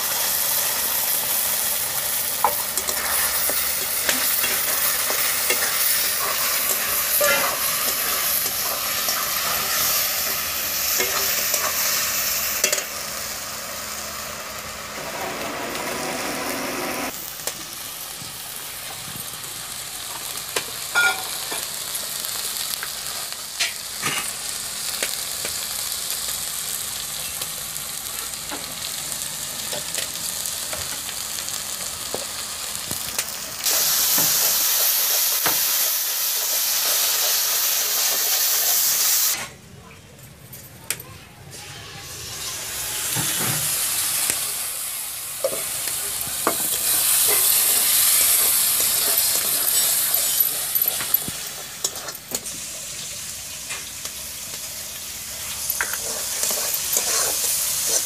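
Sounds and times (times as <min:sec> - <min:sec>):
paste sizzling in a pan: 0:00.0 - 0:39.4, 0:41.6 - 0:58.0
metal spatula scraping a pan: 0:04.1 - 0:08.3, 0:55.8 - 0:58.0.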